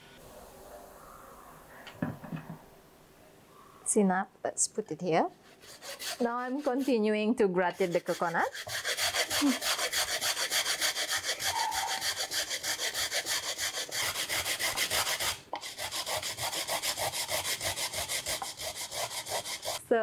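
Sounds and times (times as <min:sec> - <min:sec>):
coconut grated on metal grater: 0:05.5 - 0:19.8.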